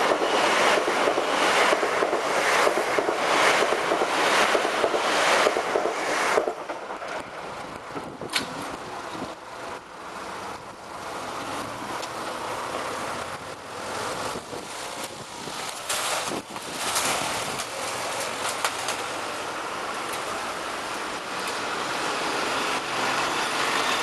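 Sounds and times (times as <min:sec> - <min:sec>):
wind buffeting microphone: 0:06.4 - 0:09.4, 0:14.2 - 0:17.7.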